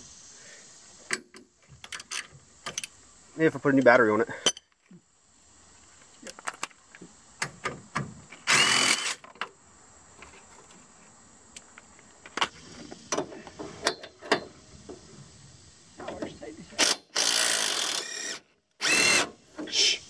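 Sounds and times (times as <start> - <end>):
impact driver burst: 8.4 - 9.2, 16.8 - 19.3.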